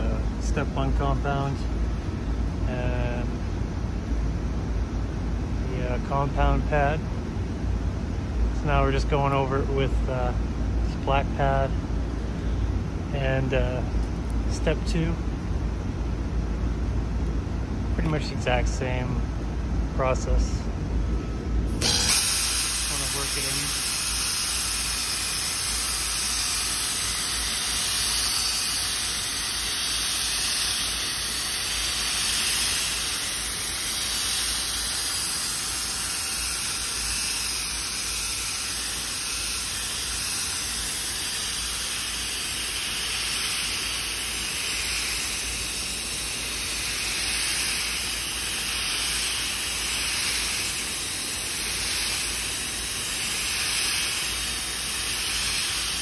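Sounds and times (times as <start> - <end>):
pneumatic polisher hissing: 21.7 - 56.0.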